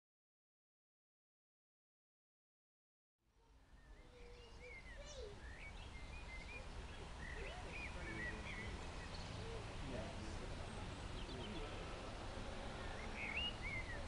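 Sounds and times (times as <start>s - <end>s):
small birds chirping: 3.4s - 14.0s.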